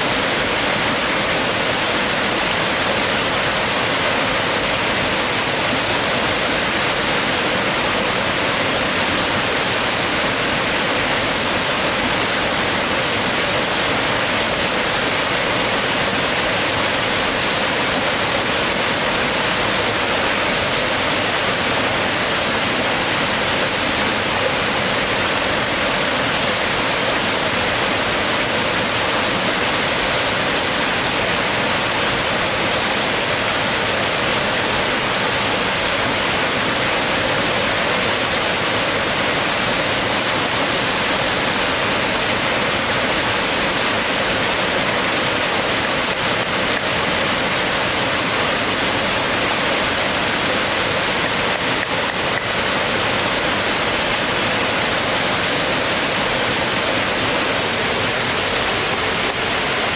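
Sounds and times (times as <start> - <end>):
water rushing over rocks: 0.0 - 59.9.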